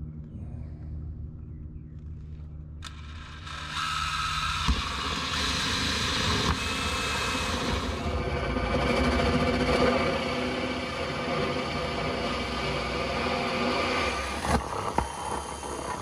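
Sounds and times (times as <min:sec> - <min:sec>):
drill with hole saw grinding: 0:02.8 - 0:16.0
sharp knocks of saw: 0:03.7 - 0:08.0.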